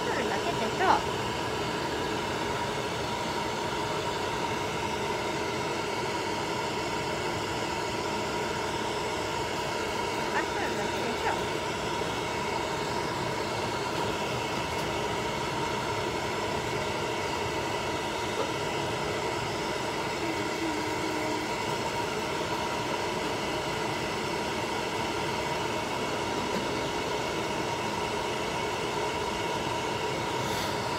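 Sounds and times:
hair dryer running: 0.0 - 30.9.

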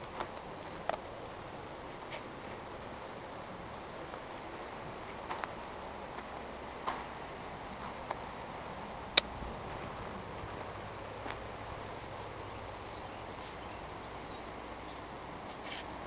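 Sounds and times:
steady outdoor hiss: 0.0 - 16.0
faint bird chirps: 11.6 - 15.1.

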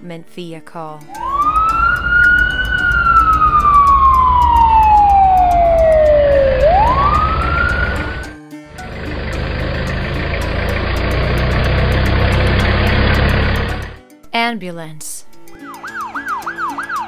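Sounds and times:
fire engine siren wailing: 1.1 - 14.0, 15.7 - 17.0
engine idling: 1.2 - 14.0
low engine rumble: 1.2 - 14.0.

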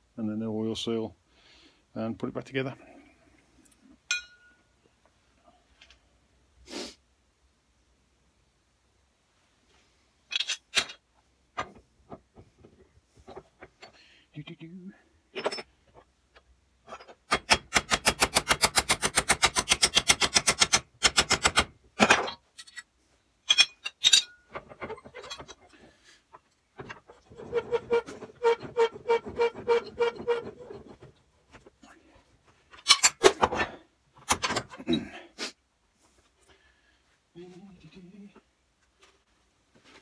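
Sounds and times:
steel parts clinking: 10.3 - 11.0, 15.3 - 16.1, 21.5 - 25.8, 32.7 - 34.8.

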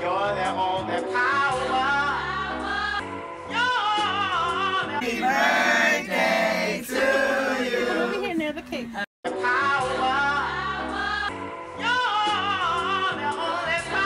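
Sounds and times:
song with sung vocals: 5.0 - 8.4.

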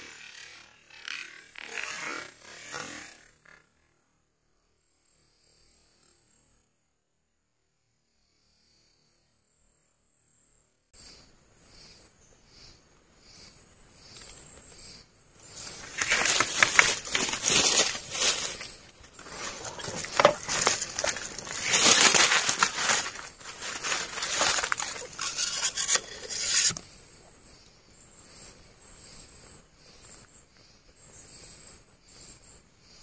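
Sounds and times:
pulsing insect calls: 11.0 - 33.0
footsteps crunching dry leaves: 15.6 - 26.8.

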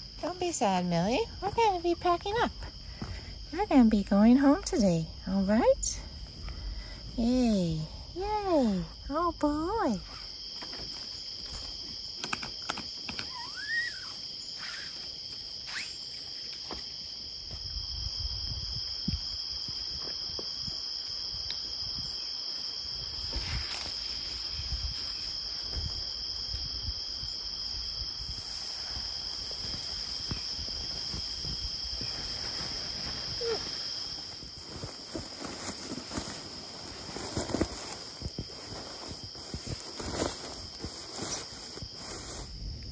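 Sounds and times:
crickets trilling: 0.0 - 42.9
small knocks and rustles: 10.6 - 13.3.

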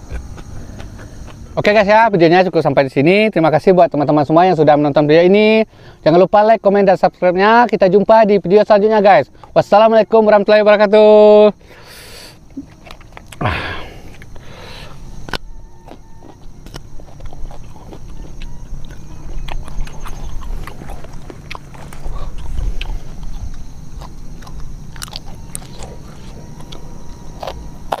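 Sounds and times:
person chewing raw vegetables: 0.0 - 1.7, 12.4 - 28.0.

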